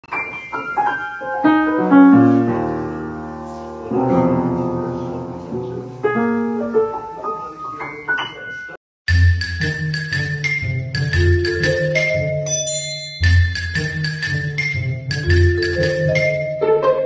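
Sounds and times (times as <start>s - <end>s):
piano keys pressed by cat: 10.4s - 12.5s, 13.2s - 17.0s.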